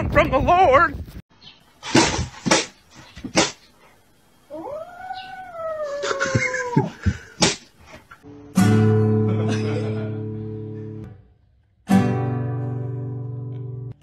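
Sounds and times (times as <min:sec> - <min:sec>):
kitten meowing: 0:04.6 - 0:06.8.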